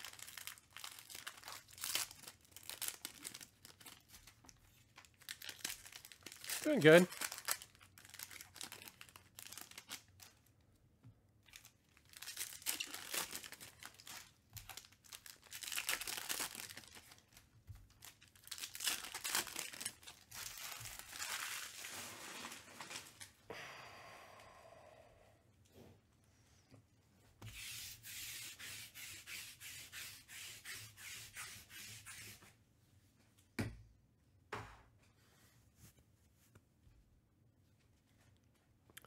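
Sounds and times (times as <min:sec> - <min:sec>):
foil wrappers crinkling and tearing: 0:00.0 - 0:10.6, 0:11.4 - 0:23.4.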